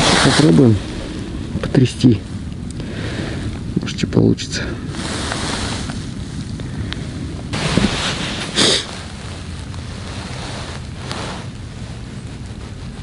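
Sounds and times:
wind rumbling on microphone: 0:00.0 - 0:13.0
short rustles: 0:04.8 - 0:13.0.

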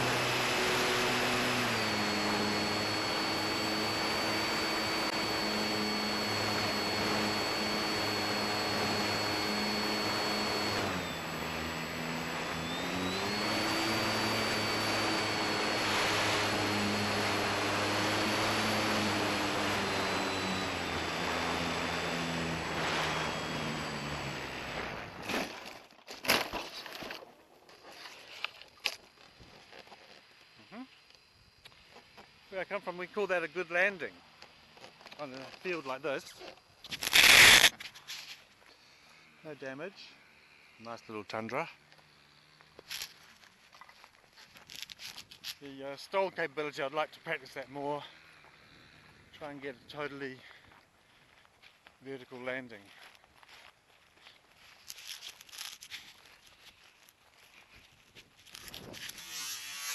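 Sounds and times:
electric propeller buzzing whine: 0:00.0 - 0:27.3, 0:28.0 - 0:59.9.

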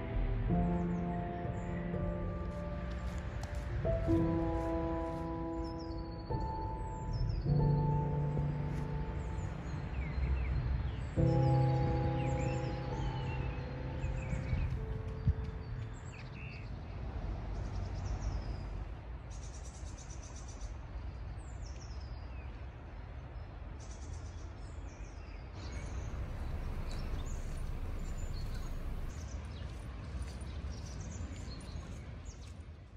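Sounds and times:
songbirds chirping and singing: 0:00.0 - 0:16.8, 0:24.6 - 0:29.8
steady low rumble: 0:25.6 - 0:29.3.

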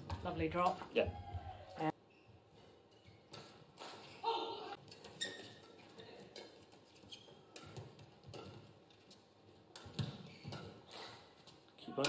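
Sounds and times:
court shoes squeaking: 0:00.0 - 0:12.0
rackets striking shuttlecock: 0:07.3 - 0:08.8, 0:09.7 - 0:11.2.

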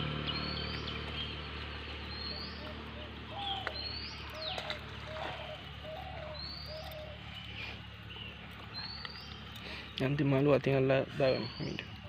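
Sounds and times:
high rising whistled bird notes: 0:00.0 - 0:09.6
short low bird notes: 0:00.0 - 0:10.2.

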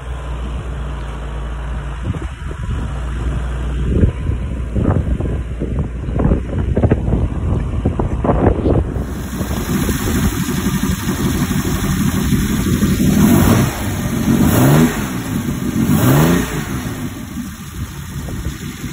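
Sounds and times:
boat engine revving: 0:09.0 - 0:18.9.

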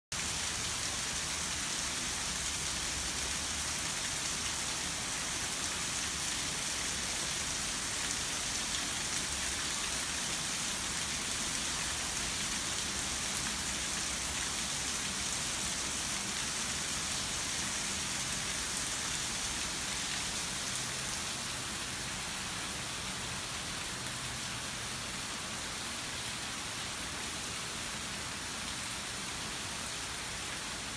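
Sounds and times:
waterfall splashing into pond: 0:00.1 - 0:22.7.

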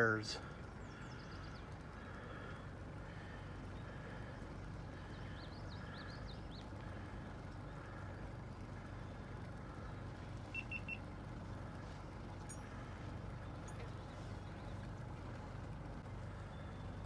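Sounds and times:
faint low rumble: 0:00.0 - 0:17.0
bird chirping: 0:00.7 - 0:02.2, 0:03.6 - 0:06.8, 0:08.9 - 0:11.1, 0:16.3 - 0:17.0.

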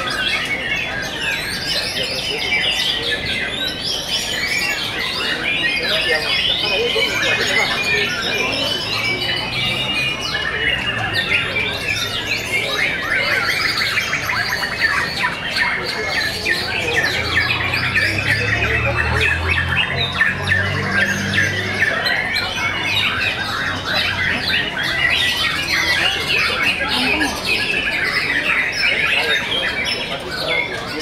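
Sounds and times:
birds singing trills and whistles: 0:00.0 - 0:31.0.

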